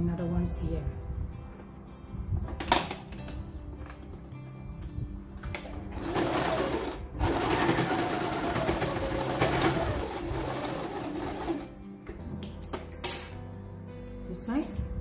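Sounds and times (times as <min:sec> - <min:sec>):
sewing machine stitching: 0:05.6 - 0:11.7.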